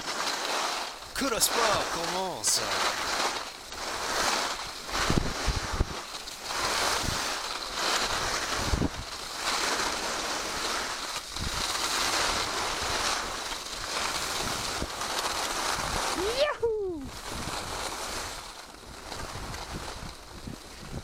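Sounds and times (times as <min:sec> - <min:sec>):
skis carving on snow: 0:00.0 - 0:21.0
wind buffeting microphone: 0:05.0 - 0:06.0, 0:08.1 - 0:09.1.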